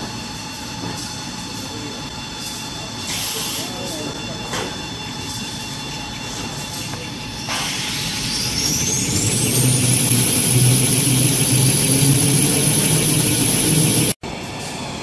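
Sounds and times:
machinery motor whine: 0:04.3 - 0:14.2
low pulsing hum: 0:08.0 - 0:14.2.

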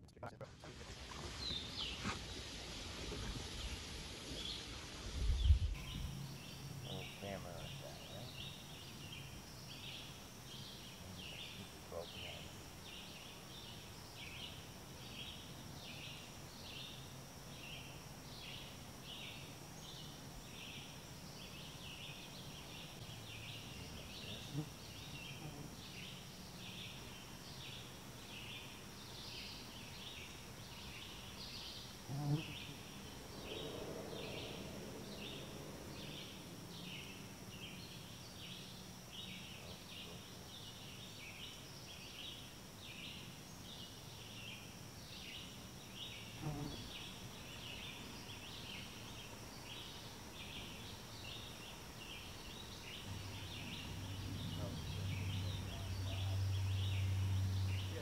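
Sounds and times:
low hum: 0:05.1 - 0:10.1, 0:32.1 - 0:39.2.

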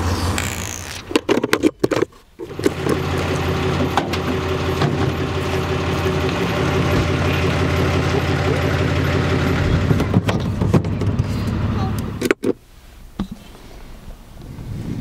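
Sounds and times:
truck engine idling: 0:02.4 - 0:12.2.

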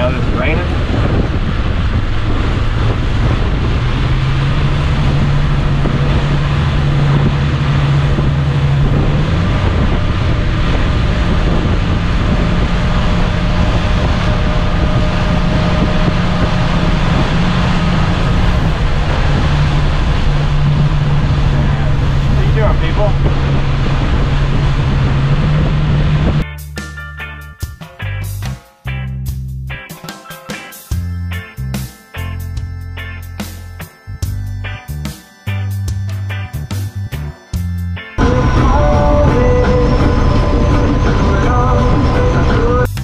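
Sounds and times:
outboard motor running hard: 0:00.0 - 0:26.4, 0:32.4 - 0:43.0
water rushing past hull: 0:00.0 - 0:26.4
wind buffeting microphone: 0:00.0 - 0:26.4, 0:38.2 - 0:42.9.

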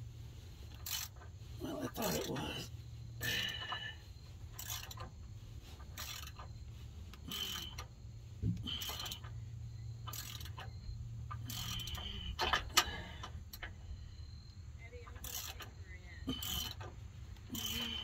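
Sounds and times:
low steady hum: 0:00.0 - 0:18.0
socket wrench ratcheting: 0:00.7 - 0:01.3, 0:04.5 - 0:05.1, 0:05.9 - 0:06.5, 0:07.2 - 0:07.9, 0:08.6 - 0:09.4, 0:10.0 - 0:13.7, 0:15.1 - 0:18.0.

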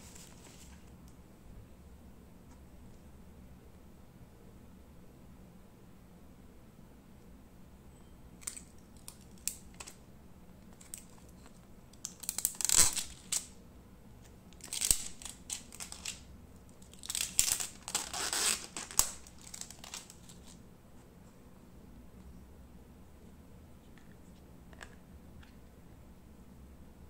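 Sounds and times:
plastic crinkling and rustling: 0:00.0 - 0:00.9, 0:10.7 - 0:13.5, 0:14.6 - 0:20.6.

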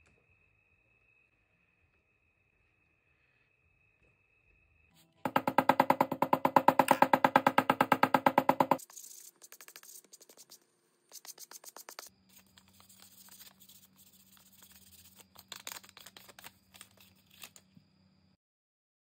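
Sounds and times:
sandpaper scratching leather: 0:08.8 - 0:17.0.

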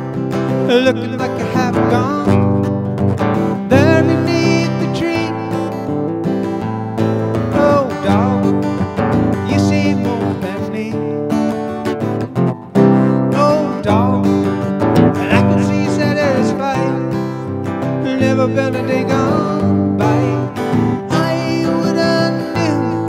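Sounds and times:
acoustic guitar strumming: 0:00.0 - 0:23.0
person singing short phrases: 0:15.2 - 0:17.0.

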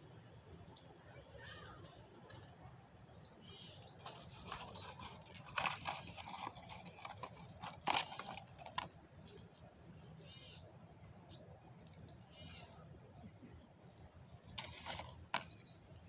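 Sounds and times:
dry leaves rustling and crunching: 0:04.0 - 0:08.9, 0:14.6 - 0:15.6.

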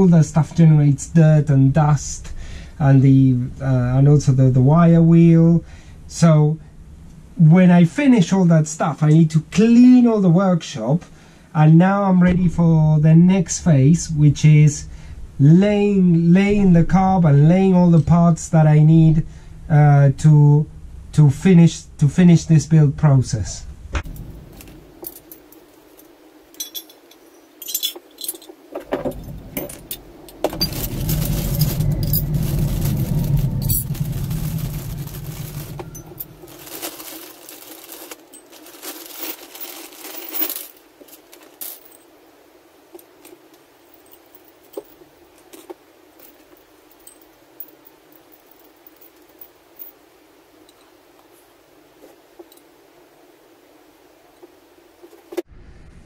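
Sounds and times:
metal parts clinking: 0:24.1 - 0:42.1, 0:43.0 - 0:50.0
plastic bag crinkling: 0:28.2 - 0:42.0
low rumble: 0:29.0 - 0:38.0, 0:55.5 - 0:56.0.

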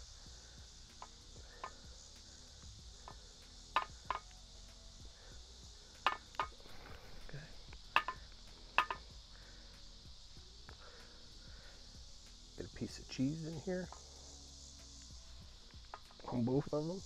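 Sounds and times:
metallic clinks of iron: 0:07.9 - 0:09.1.

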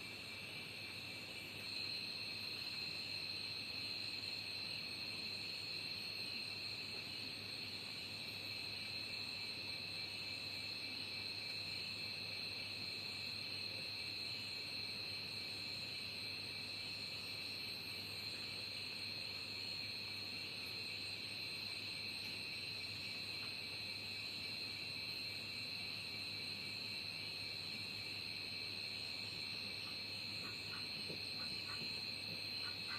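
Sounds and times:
insects trilling: 0:00.0 - 0:32.9.

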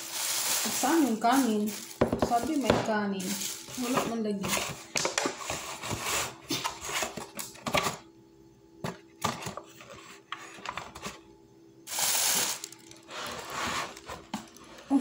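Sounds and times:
foil crinkling: 0:00.0 - 0:04.5, 0:11.9 - 0:14.1.

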